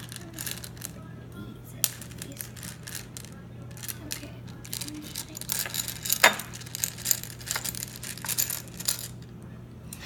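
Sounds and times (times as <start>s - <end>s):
steady low hum: 0.0s - 10.0s
close rustling: 1.9s - 9.2s.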